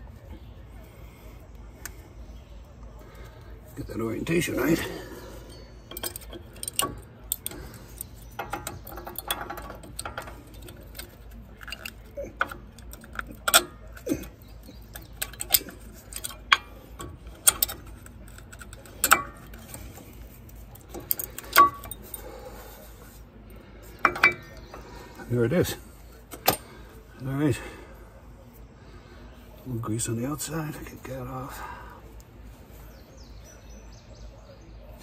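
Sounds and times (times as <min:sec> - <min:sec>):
brake pads clicking against metal clips: 0:05.5 - 0:22.3, 0:23.5 - 0:25.0, 0:26.2 - 0:26.8.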